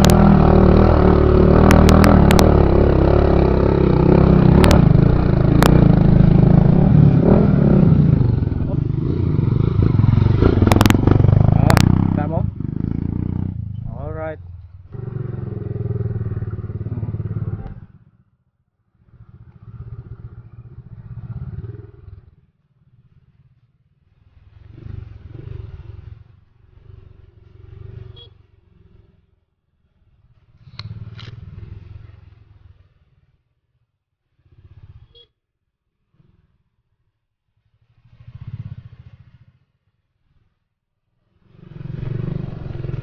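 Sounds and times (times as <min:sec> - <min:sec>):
motorcycle engine running: 0:00.0 - 0:18.3.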